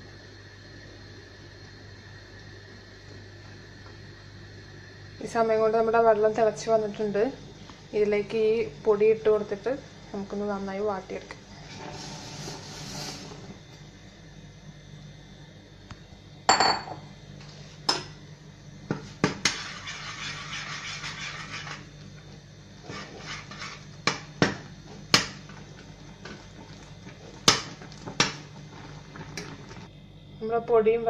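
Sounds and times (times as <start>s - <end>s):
spoon scraping pot: 19.3s - 21.9s, 22.8s - 24.3s.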